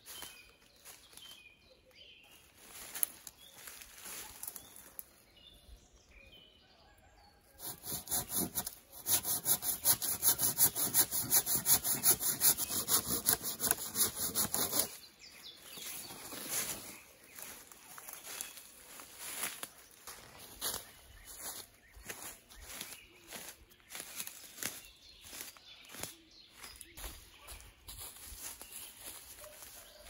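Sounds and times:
hand saw cutting wood: 7.6s - 15.0s.

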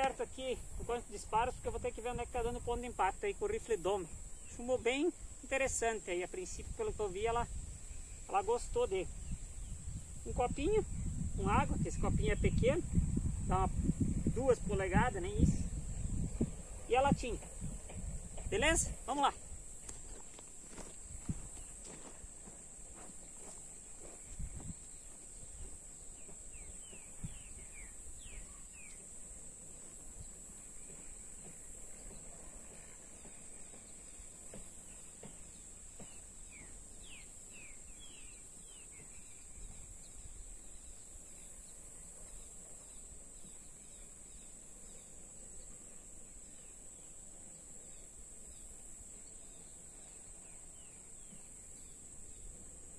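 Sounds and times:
high-pitched insect drone: 0.0s - 52.9s
wind rumbling on microphone: 6.5s - 22.2s, 24.0s - 28.6s
soft footsteps on dirt: 17.2s - 29.0s, 29.8s - 36.8s.

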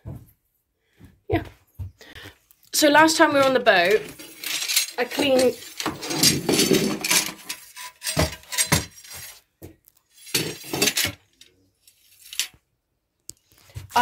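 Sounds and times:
hard objects clinking: 3.8s - 9.4s, 10.0s - 11.5s.

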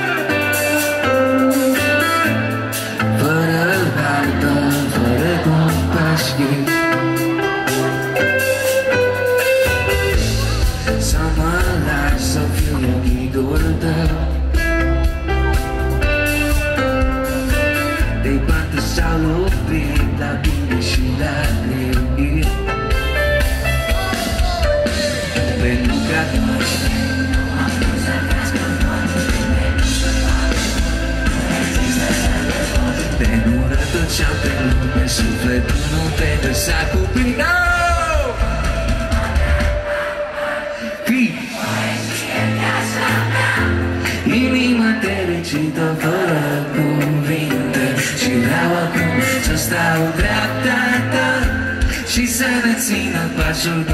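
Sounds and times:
low bass: 0.0s - 39.8s
drums: 0.0s - 53.9s
guitar and keyboard chords: 0.0s - 53.9s.

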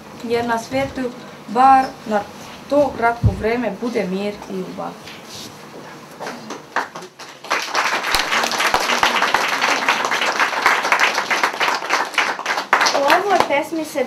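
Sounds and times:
children applauding: 6.5s - 13.5s.

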